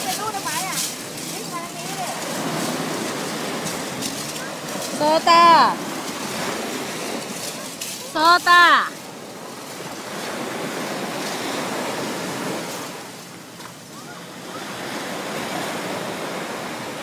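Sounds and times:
small waves breaking on sand: 0.0s - 17.0s.

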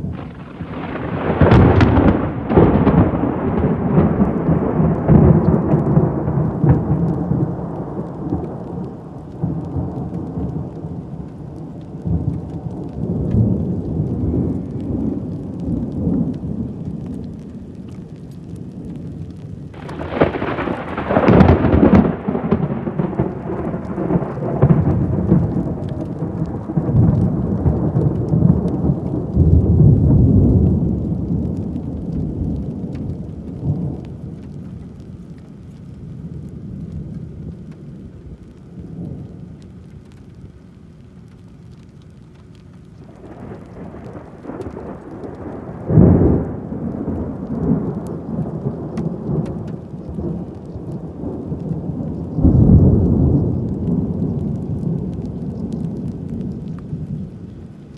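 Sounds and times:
thunder rolling: 0.0s - 40.4s, 42.9s - 57.9s
heavy rain: 0.0s - 57.9s
sharp thunderclap: 0.1s - 11.0s, 19.2s - 34.4s, 43.1s - 57.2s.

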